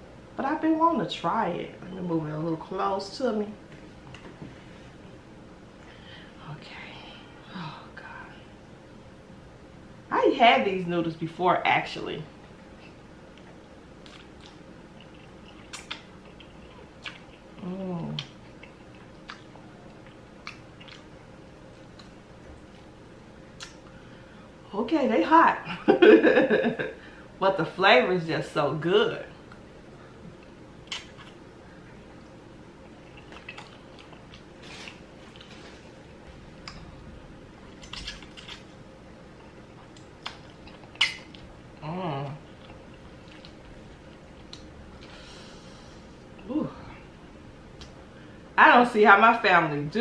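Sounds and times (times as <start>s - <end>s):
person chewing: 12.8s - 23.0s, 30.3s - 41.6s, 42.4s - 45.1s
wet mouth clicks and smacks: 14.0s - 17.4s, 18.2s - 21.1s, 23.6s - 23.9s, 30.8s - 31.4s, 37.8s - 38.7s, 39.8s - 41.5s, 44.4s - 44.7s
person humming mm: 17.6s - 18.2s.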